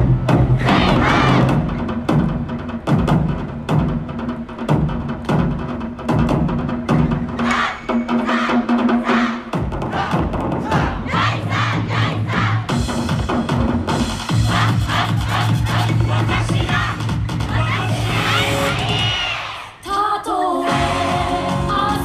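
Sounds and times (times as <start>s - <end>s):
dance music with drum beat: 0.0s - 19.6s, 20.6s - 22.0s
dancers shouting calls: 0.6s - 1.6s.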